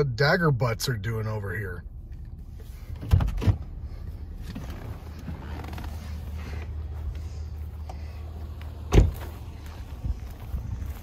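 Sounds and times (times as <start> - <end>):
steady low rumble: 0.0 - 11.0
truck door clunking open: 8.8 - 9.4
truck door slamming shut: 8.9 - 9.3.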